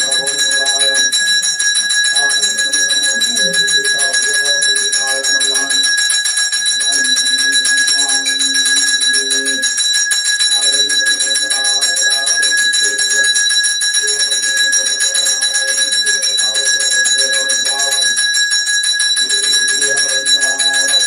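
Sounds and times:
person chanting: 0.0 - 6.0, 6.7 - 9.7, 10.5 - 13.4, 14.0 - 18.3, 19.2 - 21.0
hand bell ringing rapidly: 0.0 - 21.0.

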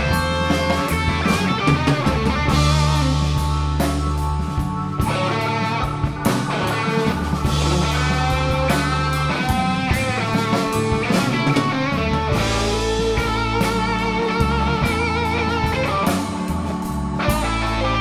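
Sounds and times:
bass guitar: 0.0 - 18.0
drum kit: 0.0 - 18.0
electric guitar wavering notes: 0.0 - 18.0
keyboard: 0.0 - 18.0.

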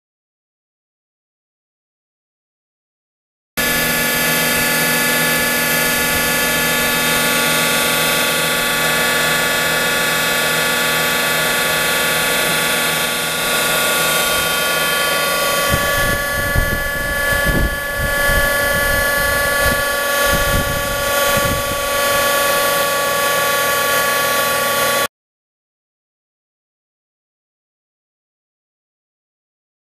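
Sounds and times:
hydraulic pump humming and whining: 3.6 - 25.1.

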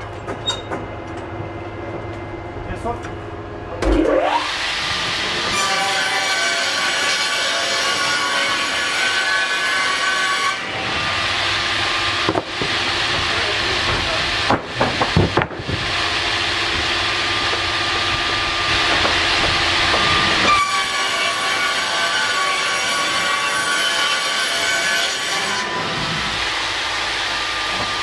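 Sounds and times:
circular saws whining: 1.5 - 28.0
saw ripping board rushing: 11.9 - 26.5
wooden boards clattering: 12.2 - 20.7.

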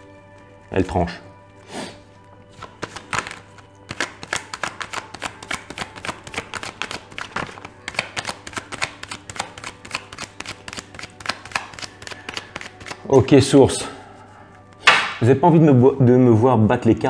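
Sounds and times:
cards being shuffled: 2.2 - 13.2.

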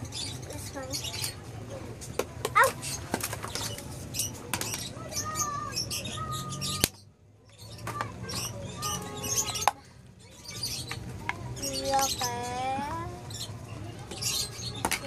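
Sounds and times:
plastic tubs clicking and knocking: 2.0 - 5.0, 6.8 - 8.6, 9.4 - 9.9, 14.8 - 15.0.

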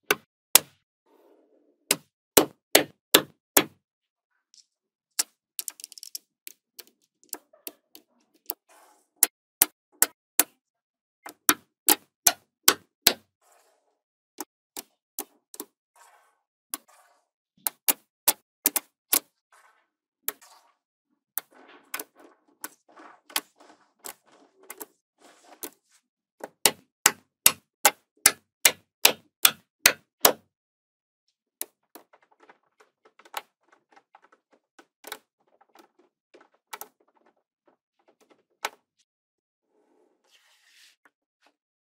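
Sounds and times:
balls rattling: 5.2 - 8.5, 31.6 - 38.9.

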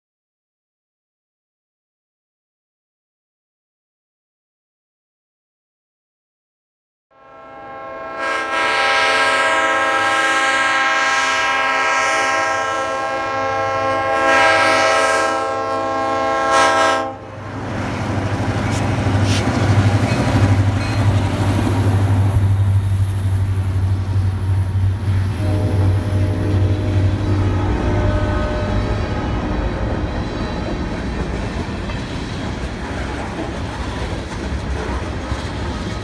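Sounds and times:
train air horn blasts: 7.1 - 17.4, 25.3 - 31.0
locomotive engine drone: 9.4 - 36.0
freight cars rumbling: 17.2 - 36.0.

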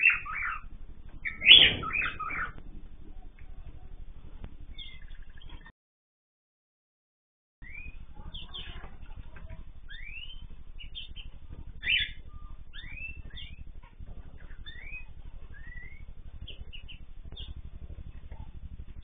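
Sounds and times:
birds whistling and chirping: 0.0 - 2.6, 4.7 - 5.7, 7.6 - 8.9, 9.8 - 19.0
low hum: 0.0 - 5.7, 7.6 - 19.0.

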